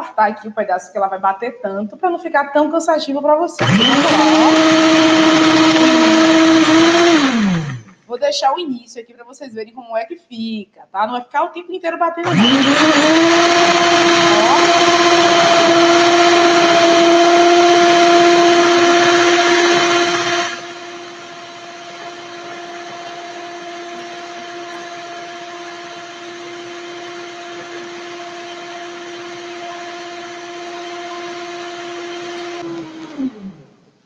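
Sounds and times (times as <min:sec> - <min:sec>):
electric mixer motor whining: 0:03.6 - 0:08.0, 0:12.2 - 0:33.7.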